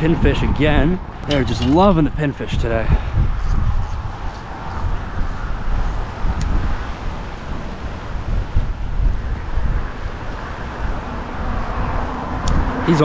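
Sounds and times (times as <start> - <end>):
road traffic rushing: 0.0 - 13.0
wind buffeting microphone: 0.0 - 13.0.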